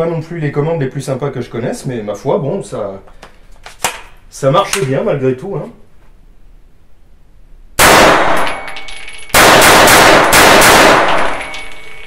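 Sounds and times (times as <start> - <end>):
rapid gunshots: 7.8 - 8.5, 9.4 - 11.5
high ringing: 11.2 - 12.0.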